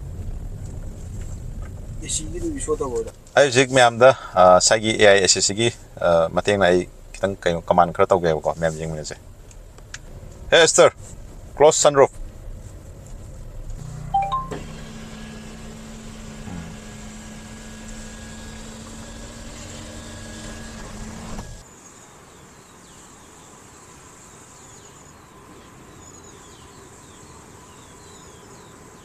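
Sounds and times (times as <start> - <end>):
road noise inside car: 0.0 - 21.7
outdoor ambience: 0.0 - 29.0
sunroof motor humming: 11.1 - 21.6
high falling chirps: 14.1 - 14.7.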